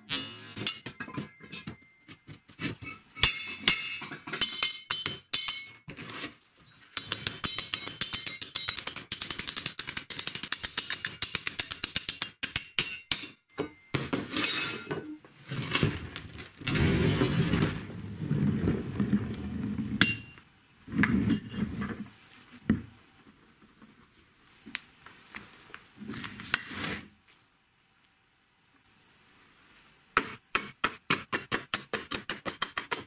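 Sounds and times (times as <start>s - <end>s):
metal strut rolling on wooden bench: 14.2s - 20.1s.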